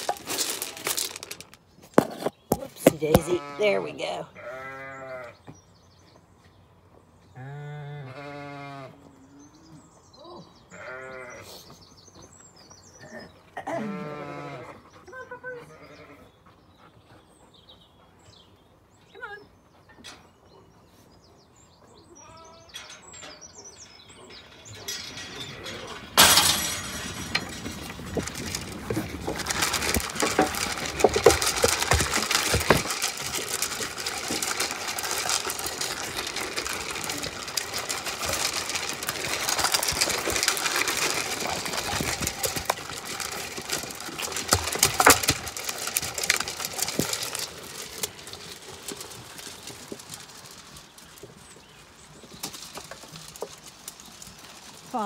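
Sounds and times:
crunching of pellets: 0.0 - 3.6, 24.6 - 55.0
birdsong: 0.0 - 55.0
clatter of hooves: 0.0 - 55.0.

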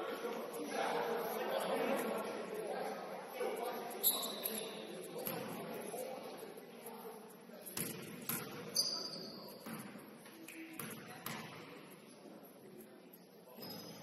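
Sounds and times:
faint voices: 0.0 - 14.0.

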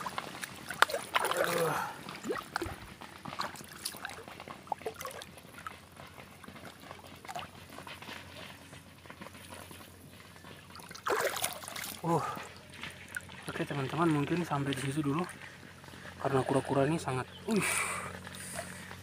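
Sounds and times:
splashing in shallow water: 0.0 - 8.0, 10.7 - 15.4.

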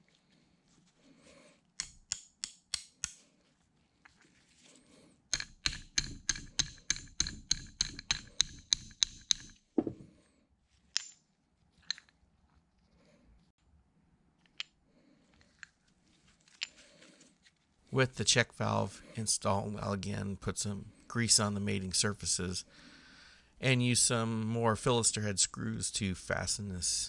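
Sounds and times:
hammer tapping on metal: 5.3 - 10.0
dull knock: 9.8 - 10.1.

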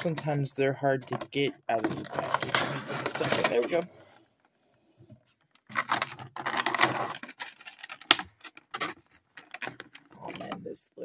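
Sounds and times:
plastic packaging rustling: 1.7 - 3.9, 5.4 - 10.5.

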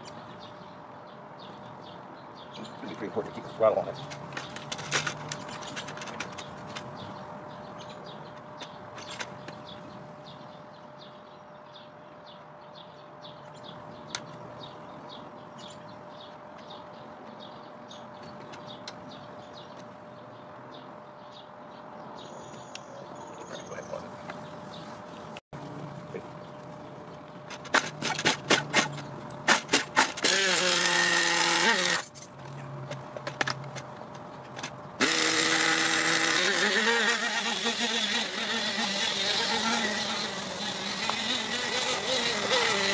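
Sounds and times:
small nitro engine running: 29.5 - 32.1, 35.0 - 42.9.

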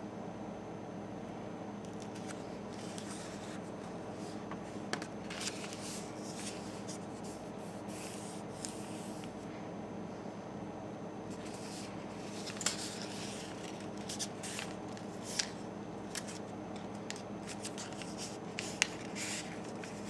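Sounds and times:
paper rustling on wooden table: 2.0 - 9.4, 11.3 - 20.0.

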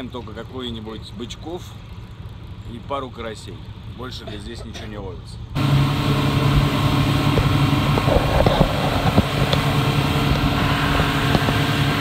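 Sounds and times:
outboard motor running: 5.6 - 12.0
water rushing from wake: 5.6 - 12.0.

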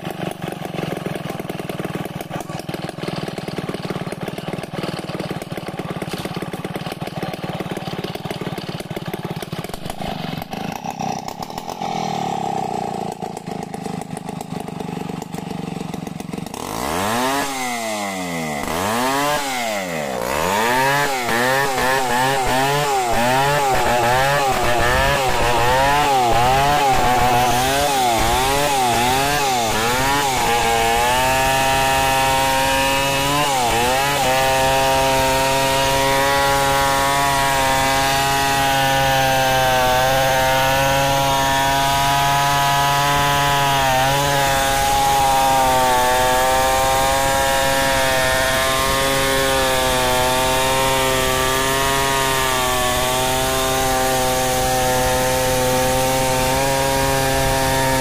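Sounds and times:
chainsaw cutting through log: 0.0 - 58.0.

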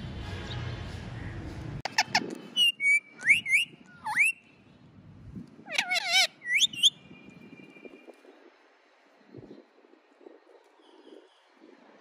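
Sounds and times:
parrot whistling: 2.6 - 4.4, 5.7 - 6.9.

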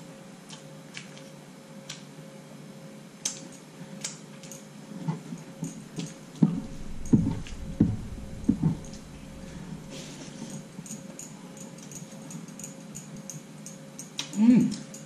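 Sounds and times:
chewing and mouth clicks: 0.4 - 2.1, 11.0 - 15.0.

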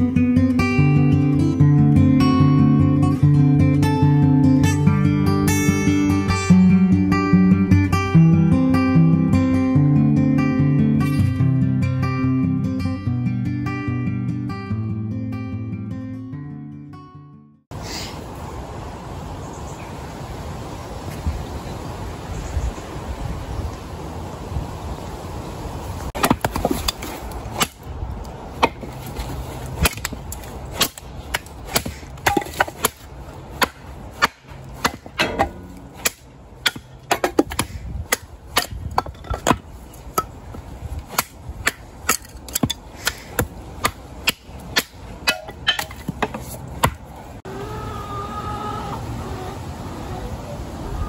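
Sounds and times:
hatchet chopping wood: 26.2 - 27.9, 28.6 - 29.2, 29.8 - 40.4, 41.1 - 47.0.

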